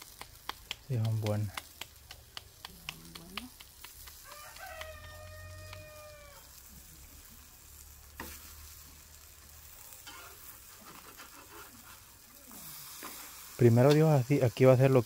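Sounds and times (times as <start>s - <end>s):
food sizzling on a griddle: 0.0s - 15.0s
chicken calling: 4.3s - 6.5s.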